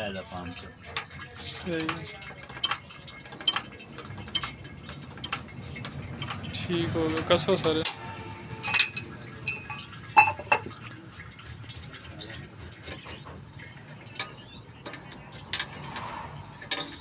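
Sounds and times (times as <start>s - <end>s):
spanner clinking on metal: 0.8s - 10.7s, 13.8s - 17.0s.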